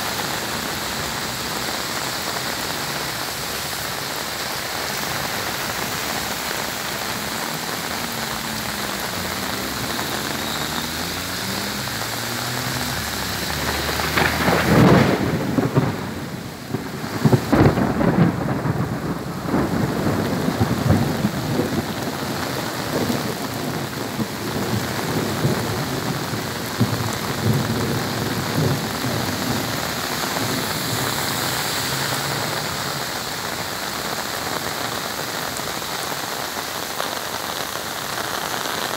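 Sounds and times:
heavy rain pouring: 0.0s - 38.9s
rumble of thunder: 13.7s - 31.1s.

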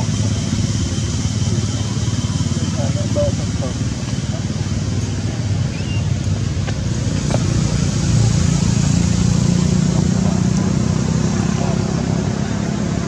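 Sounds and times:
vehicle engine humming: 0.0s - 13.0s.

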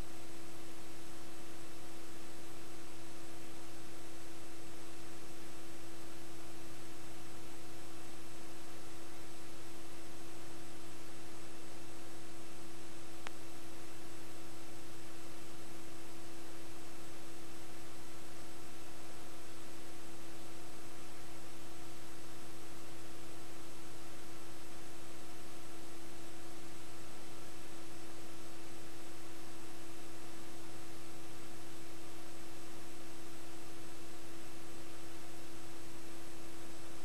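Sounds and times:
constant hum tone: 0.0s - 37.0s
electronic hiss: 0.0s - 37.0s
faint click: 13.2s - 13.5s.

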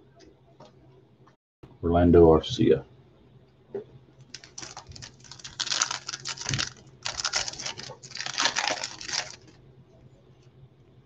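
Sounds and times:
wrapper crinkling and tearing: 4.3s - 9.6s.

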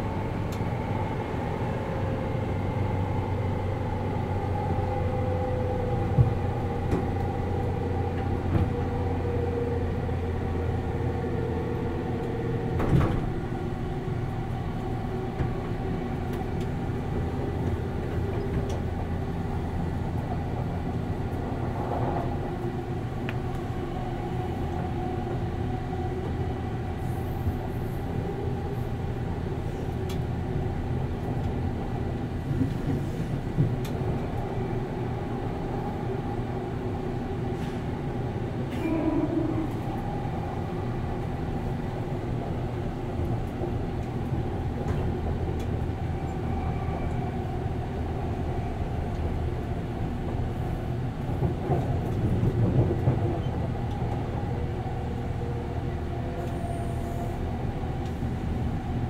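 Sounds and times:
rolling rail noise: 0.0s - 59.0s.

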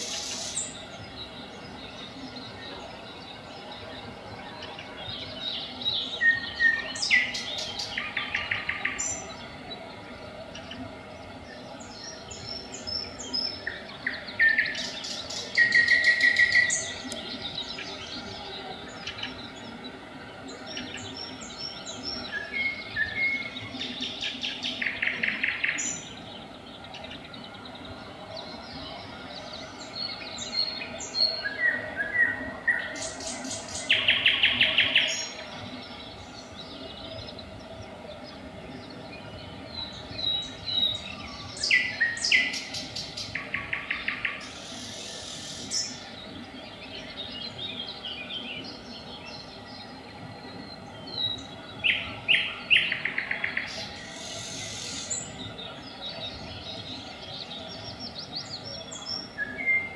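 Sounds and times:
nightingale singing: 11.8s - 37.9s, 38.8s - 59.9s.

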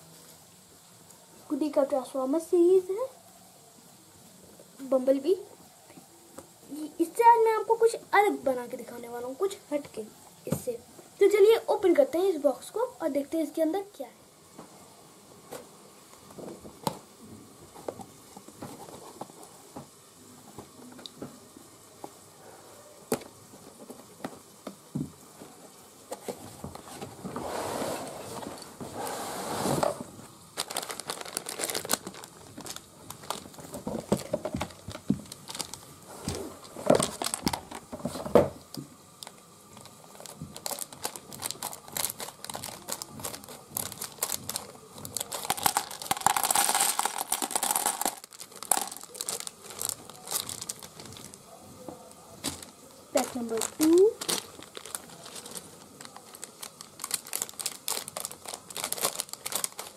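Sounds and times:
plastic bags crinkling: 30.5s - 51.6s, 52.4s - 59.9s
plastic pieces clicking: 45.2s - 50.8s.

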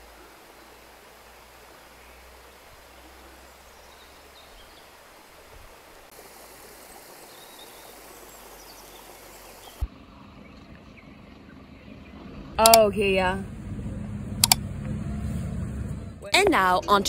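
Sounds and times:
stream trickling over rocks: 0.0s - 10.0s
faint outdoor ambience: 0.0s - 17.0s.

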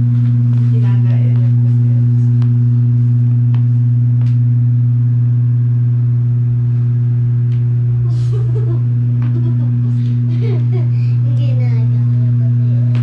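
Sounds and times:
loud low hum: 0.0s - 13.0s.

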